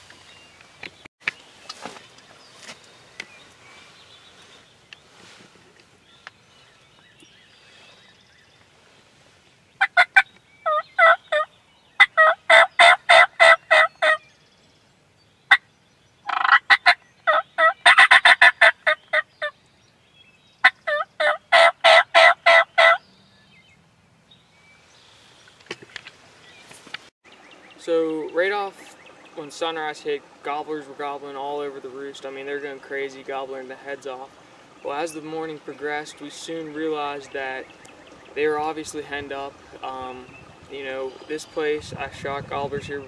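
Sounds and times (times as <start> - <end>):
turkey calling: 9.8 - 14.2, 15.5 - 19.6, 20.6 - 23.0.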